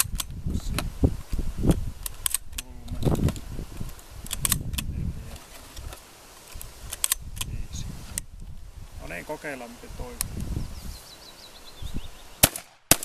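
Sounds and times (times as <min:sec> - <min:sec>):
shotgun loading clicks and rattles: 0:00.0 - 0:00.9, 0:02.0 - 0:07.5.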